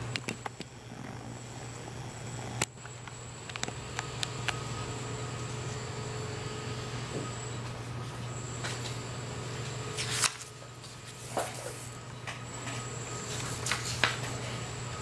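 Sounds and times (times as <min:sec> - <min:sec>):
room ventilation hum: 0:00.0 - 0:15.0.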